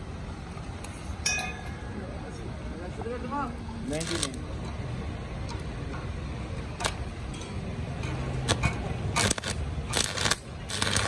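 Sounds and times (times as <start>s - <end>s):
arc welding crackling: 3.8s - 4.6s, 8.3s - 11.0s.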